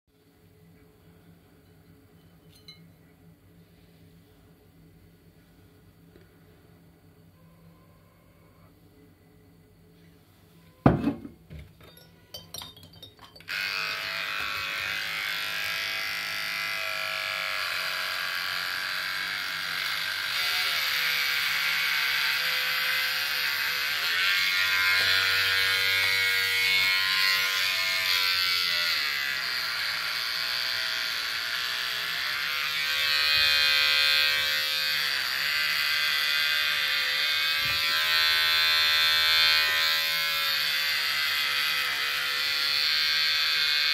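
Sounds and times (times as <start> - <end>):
electric hair clippers buzzing: 13.4 - 43.9.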